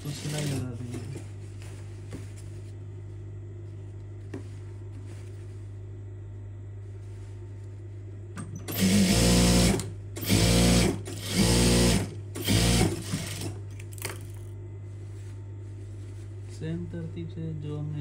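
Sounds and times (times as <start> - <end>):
sewing machine stitching: 8.6 - 13.6.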